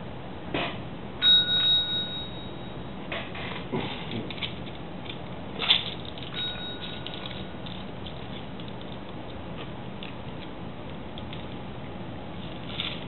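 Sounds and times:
metal service bell ding: 1.2 - 3.0, 6.3 - 7.6.

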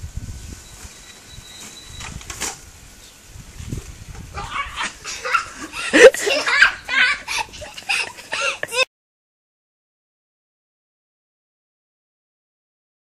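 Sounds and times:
children giggling and squealing: 4.3 - 8.9.

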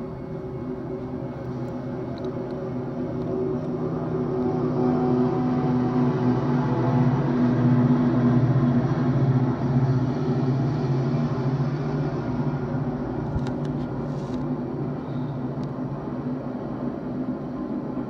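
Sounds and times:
diesel locomotive humming: 0.0 - 18.0.

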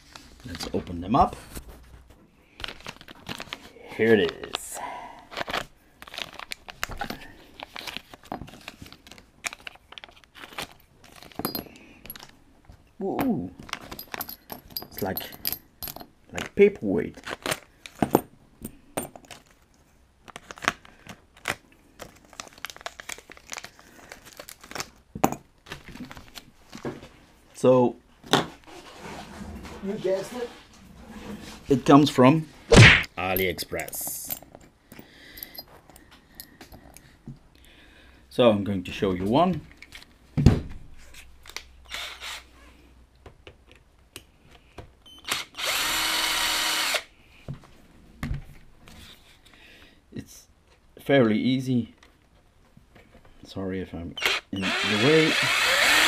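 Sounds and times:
plastic packaging crinkling: 2.5 - 4.6, 5.3 - 7.0, 20.2 - 26.8
cordless drill running: 41.9 - 42.5, 45.2 - 47.1, 54.2 - 56.0.

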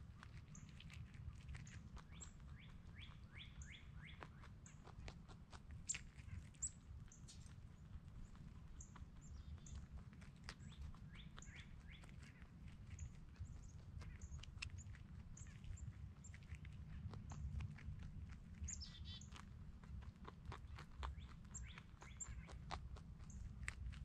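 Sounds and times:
low steady rumble: 0.0 - 24.0
rabbit crunching food: 0.0 - 24.0
faint bird chirps: 2.0 - 4.8, 18.6 - 19.3, 21.2 - 22.6.

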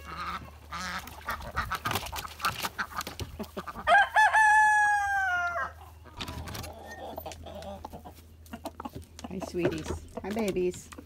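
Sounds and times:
chickens clucking: 0.0 - 11.0
rooster crowing: 3.9 - 5.8.

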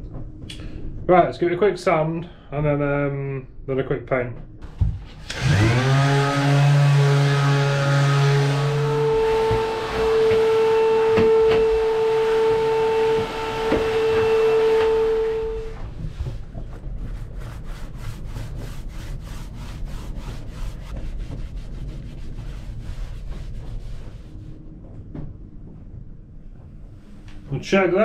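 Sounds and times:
vacuum cleaner whine: 4.6 - 16.8
paint roller rubbing on wood: 5.0 - 24.6.

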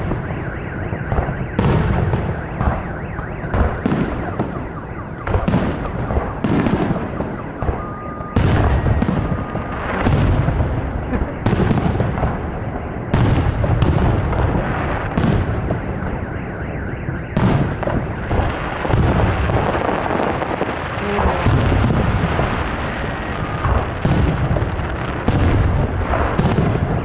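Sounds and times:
fireworks bangs: 0.0 - 27.0
rumble and echo: 17.4 - 27.0.

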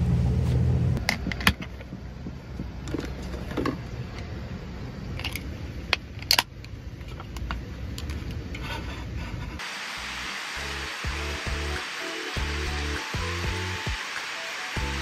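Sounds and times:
low steady rumble: 0.0 - 9.6.

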